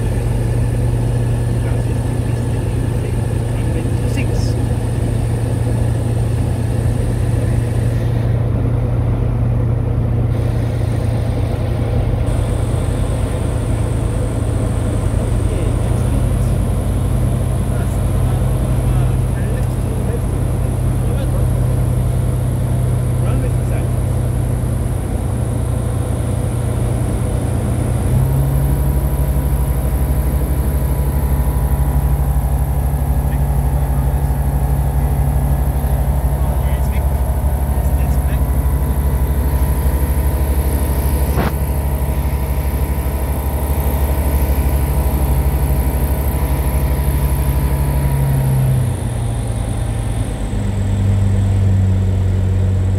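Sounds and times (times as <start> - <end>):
aircraft engine and propeller drone: 0.0 - 52.9
strong low hum: 0.0 - 52.9.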